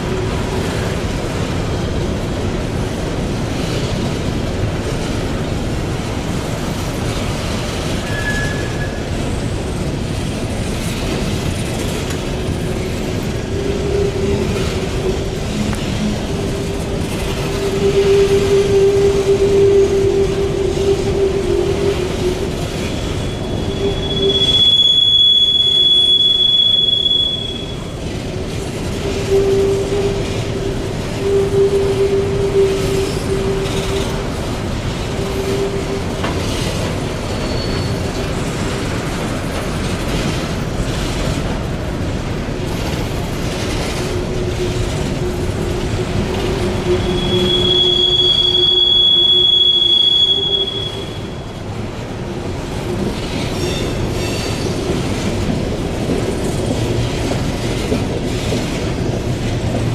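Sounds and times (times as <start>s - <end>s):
train wheels rolling on rails: 0.0s - 59.9s
steel wheels squealing: 7.2s - 9.9s, 10.5s - 41.5s, 42.7s - 51.7s, 52.8s - 55.4s.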